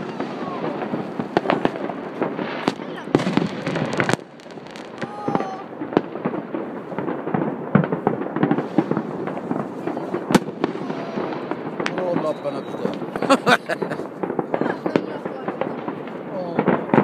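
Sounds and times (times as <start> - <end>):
fireworks bangs and pops: 0.0 - 17.0
firework whistle: 10.3 - 14.1.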